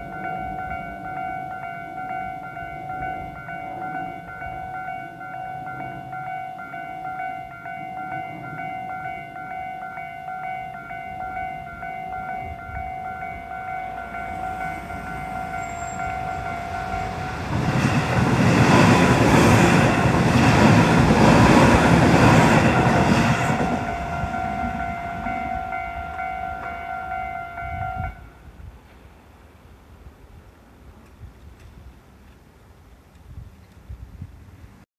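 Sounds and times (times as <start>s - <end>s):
level crossing bell ringing: 0.0s - 17.6s, 22.5s - 28.2s
train passing: 0.0s - 33.1s.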